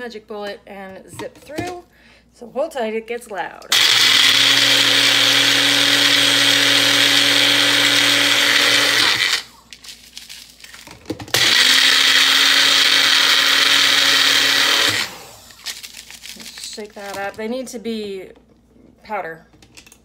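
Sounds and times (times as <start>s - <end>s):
blender grinding eggshells: 3.7s - 17.4s.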